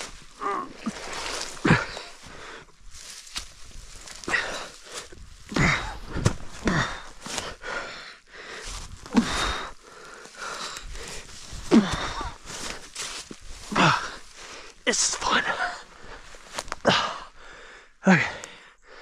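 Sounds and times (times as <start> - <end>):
dry leaves rustling and crunching: 0.0 - 7.5, 9.9 - 14.5
man grunting and breathing hard: 0.3 - 2.8, 4.2 - 12.9, 13.6 - 16.2, 16.8 - 19.0.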